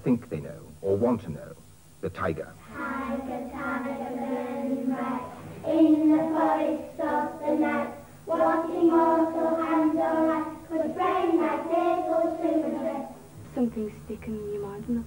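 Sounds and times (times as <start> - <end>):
children singing: 2.7 - 13.2.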